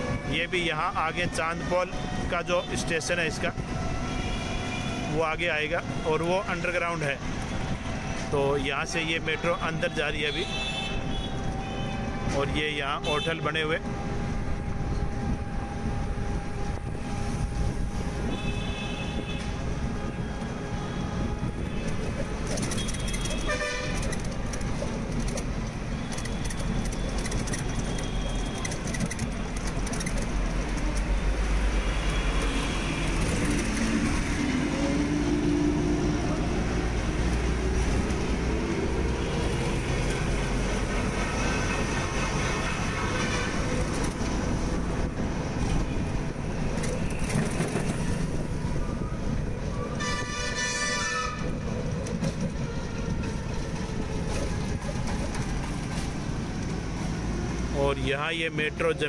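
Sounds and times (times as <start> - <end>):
road traffic engines and rumble: 0.0 - 59.0
car horns honking: 9.4 - 13.4, 21.0 - 24.3, 50.0 - 51.6.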